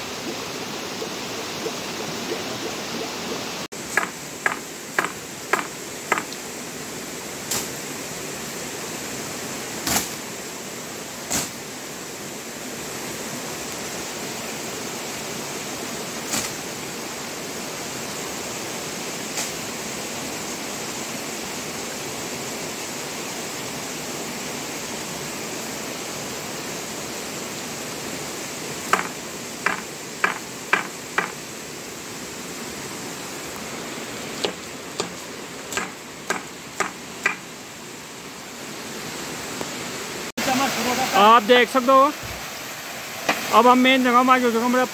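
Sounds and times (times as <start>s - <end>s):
running water: 0.0s - 22.7s, 25.0s - 44.9s
sharp clicks and taps: 3.9s - 6.4s, 28.9s - 31.3s.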